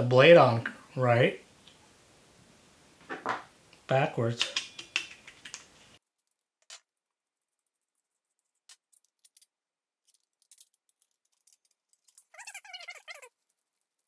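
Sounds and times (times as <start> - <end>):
metal parts clicking and tapping: 8.6 - 12.4.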